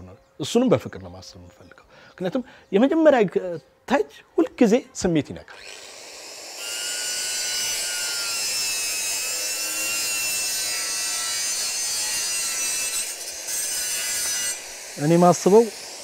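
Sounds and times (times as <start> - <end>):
small power tool grinding: 5.4 - 16.0.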